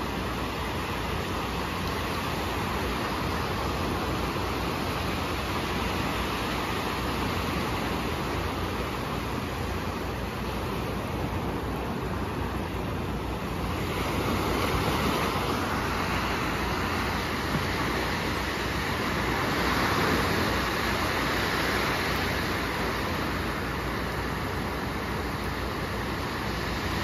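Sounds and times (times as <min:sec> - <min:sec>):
small waves washing on sandy shore: 0:00.0 - 0:27.0.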